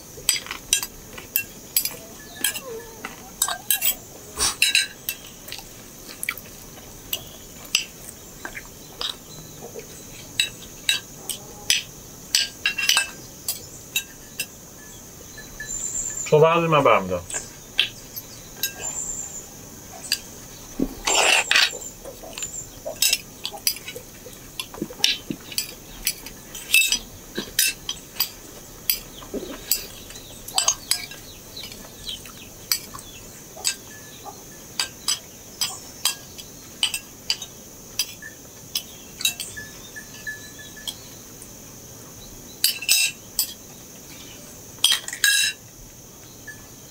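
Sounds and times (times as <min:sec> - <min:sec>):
crickets chirring: 0:00.0 - 0:46.9
cutlery clinking on plates: 0:00.2 - 0:06.4, 0:07.1 - 0:14.6, 0:21.0 - 0:34.2, 0:34.8 - 0:41.1, 0:42.6 - 0:43.6, 0:44.8 - 0:45.6.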